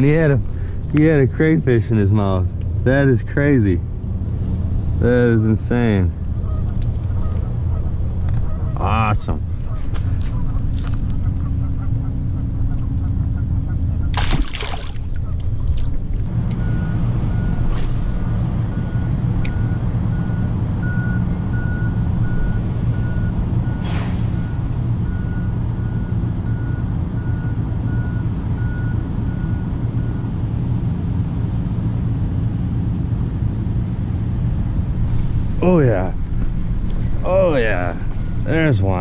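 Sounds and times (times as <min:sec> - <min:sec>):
low engine rumble: 0:00.0 - 0:39.0
truck reversing alarm beeping: 0:16.3 - 0:30.9, 0:35.0 - 0:39.0
short hiss: 0:23.8 - 0:24.5, 0:35.0 - 0:35.6.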